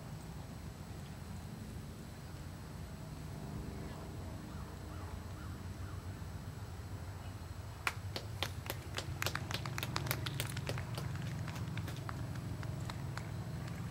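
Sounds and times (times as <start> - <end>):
low background rumble: 0.0 - 13.9
people clapping: 7.8 - 13.9.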